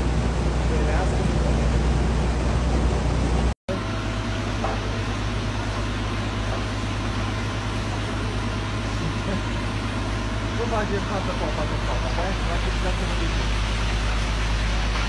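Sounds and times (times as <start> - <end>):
engine humming: 0.0 - 3.6.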